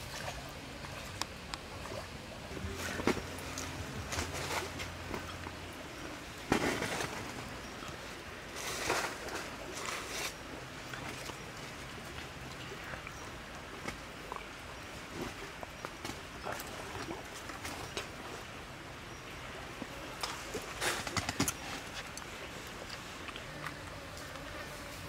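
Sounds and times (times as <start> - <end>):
faint low hum: 0.1 - 13.8
rustles and light knocks: 20.2 - 22.4
scraping rustle: 20.3 - 22.2.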